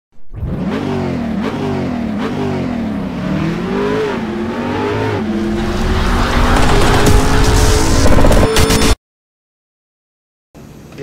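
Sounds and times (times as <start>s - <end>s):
car engine revving: 0.3s - 8.8s.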